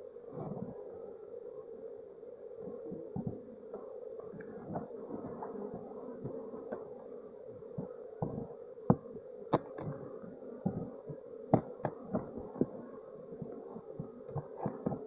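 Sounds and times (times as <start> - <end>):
bee swarm buzzing: 0.0 - 15.0
sharp clicks and knocks: 9.5 - 10.0.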